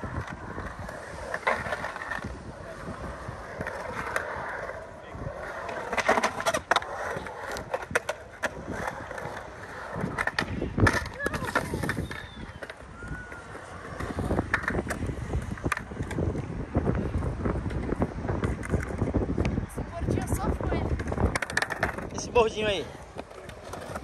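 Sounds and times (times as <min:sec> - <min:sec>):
skateboard clacking and scraping coping: 0:00.0 - 0:24.0
skateboard wheels rolling on concrete: 0:00.0 - 0:24.0.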